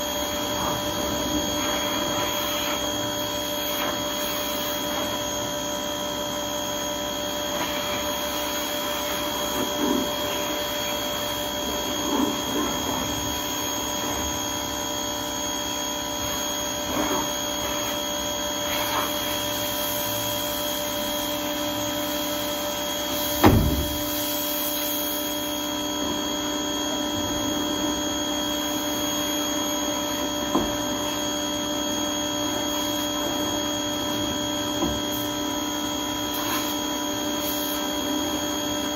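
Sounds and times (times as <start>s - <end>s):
pressure washer humming: 0.0s - 38.9s
sharp thump: 23.4s - 24.0s.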